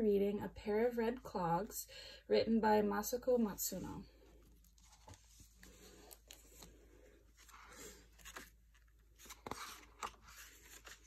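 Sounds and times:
paper rustling: 4.5 - 11.0.

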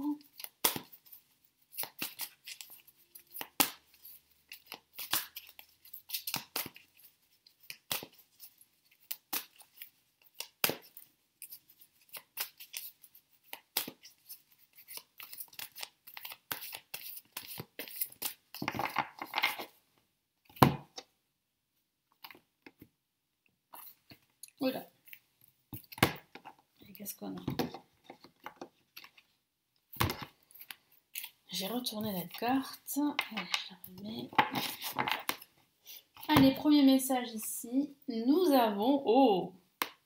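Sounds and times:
cards being shuffled: 0.2 - 19.8, 29.9 - 35.5.

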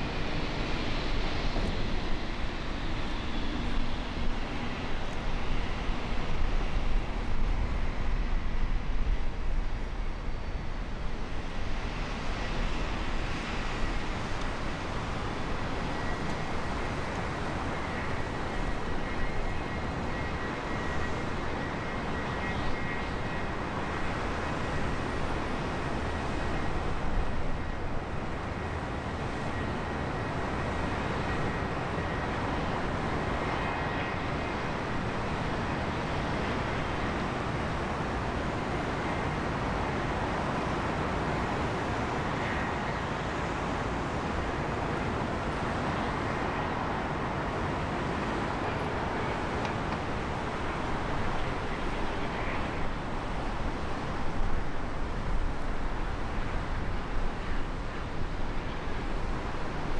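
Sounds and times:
jet engines running: 0.0 - 59.9.

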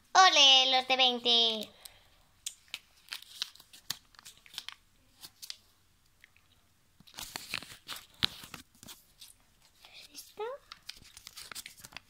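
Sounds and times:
paper banknotes crinkling: 2.6 - 5.6, 7.1 - 12.0.

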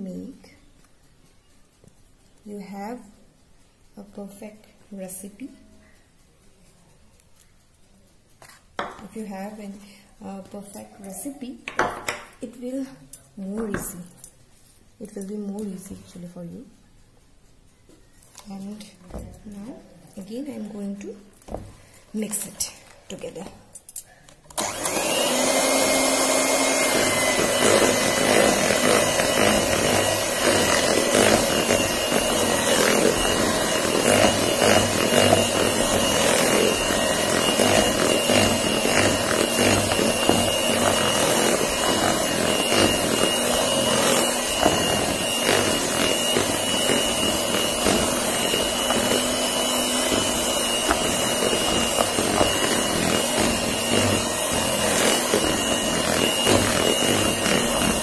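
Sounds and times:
electric hand mixer whine: 24.6 - 58.0.

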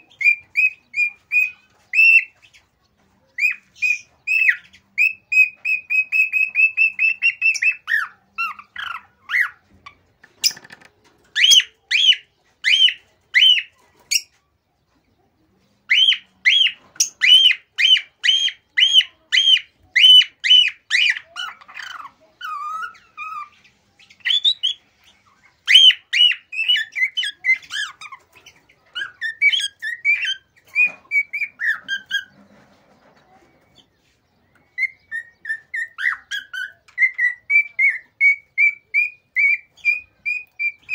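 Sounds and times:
cockatiel whistling: 34.8 - 40.9.

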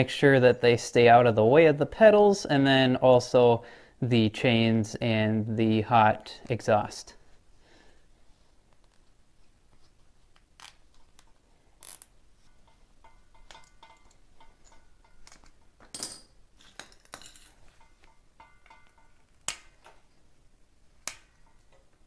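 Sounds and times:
sharp clicks and snaps: 21.0 - 21.3.

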